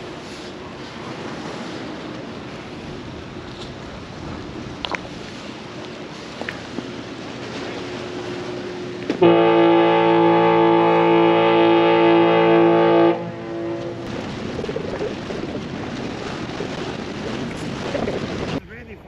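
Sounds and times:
wind on microphone: 0.0 - 19.0
ferry horn blast: 9.2 - 14.1.

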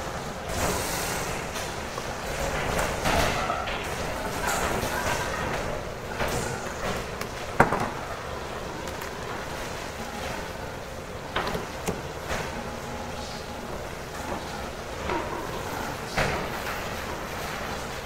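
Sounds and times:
steady background noise: 0.0 - 18.0.

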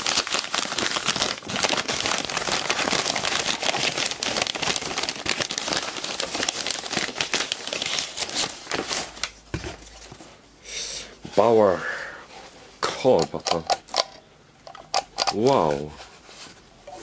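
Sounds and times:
packing paper crinkling: 0.0 - 10.3.

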